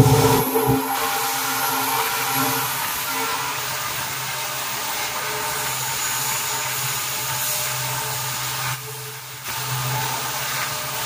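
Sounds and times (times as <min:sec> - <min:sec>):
diesel locomotive hum: 0:00.0 - 0:04.0.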